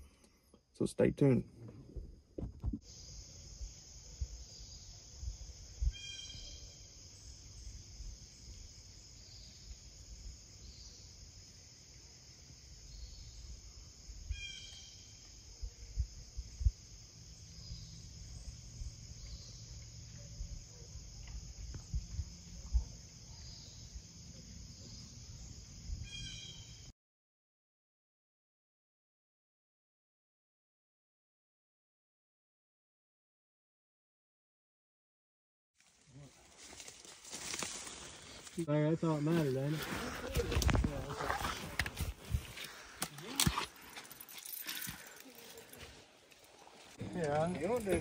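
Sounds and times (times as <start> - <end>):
insects chirring: 0.1 - 26.9, 35.8 - 48.0
microphone bumps: 1.7 - 2.8, 40.2 - 42.6.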